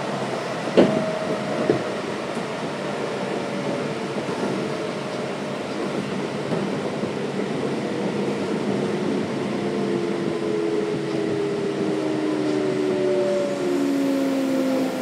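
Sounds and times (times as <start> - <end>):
train wheels on rail: 0.0 - 15.0.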